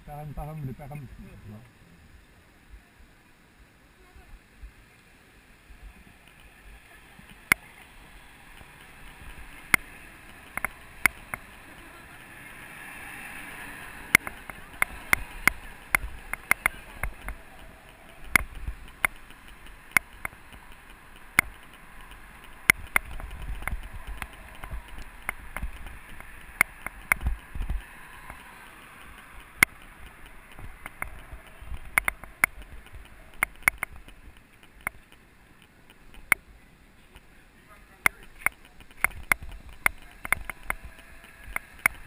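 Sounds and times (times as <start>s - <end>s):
wind rumble on microphone: 14.3s - 28.6s, 29.2s - 34.4s.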